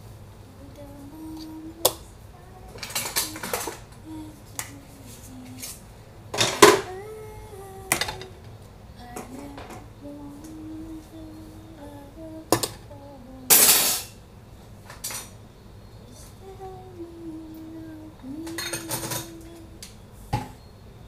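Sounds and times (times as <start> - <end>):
woman humming softly: 0.5 - 5.8, 6.8 - 13.6, 16.0 - 20.0
dishes and utensils clattering: 2.8 - 3.9, 6.4 - 6.9, 13.5 - 14.2, 18.5 - 19.4.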